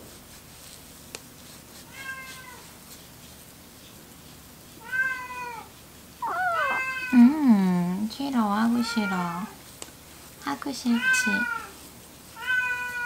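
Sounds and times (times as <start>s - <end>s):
kitten meowing: 6.2s - 7.4s.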